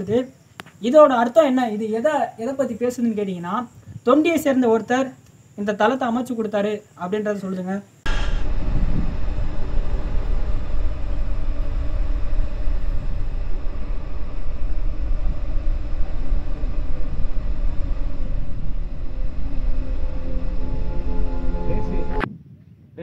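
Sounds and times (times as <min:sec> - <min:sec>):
wind buffeting microphone: 0:08.1 - 0:22.9.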